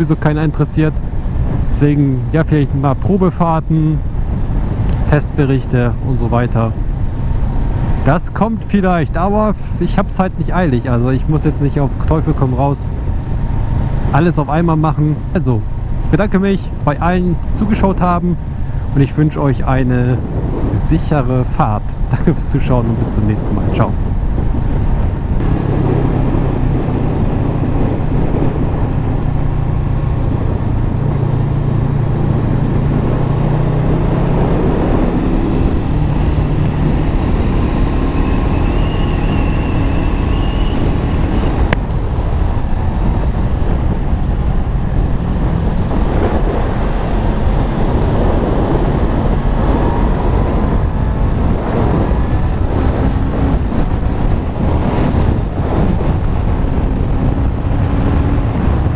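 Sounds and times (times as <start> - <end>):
wind rushing over microphone: 0.0 - 58.9
motorcycle engine running: 24.1 - 58.9.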